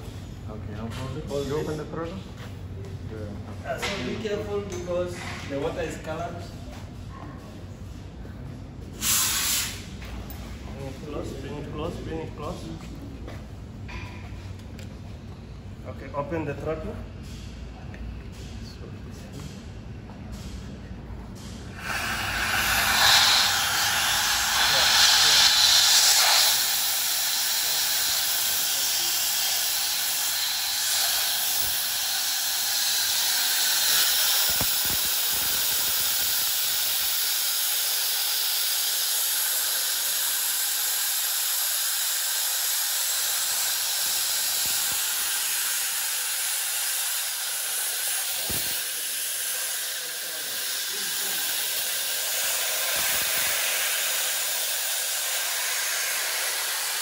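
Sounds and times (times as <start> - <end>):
compressed air hissing: 9.0 - 9.9, 21.5 - 57.0.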